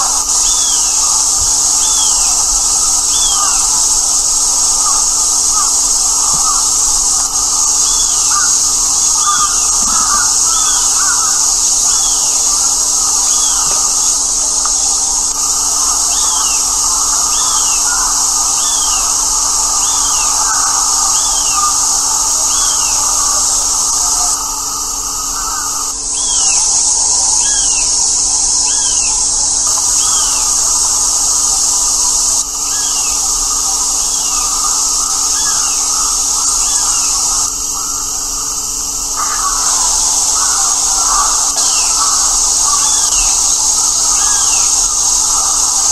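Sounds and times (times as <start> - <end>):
high-pitched insect chorus: 0.0 - 45.9
steady high-pitched hiss: 0.0 - 45.9
crow calls: 7.8 - 12.2, 15.8 - 26.0, 39.2 - 43.4.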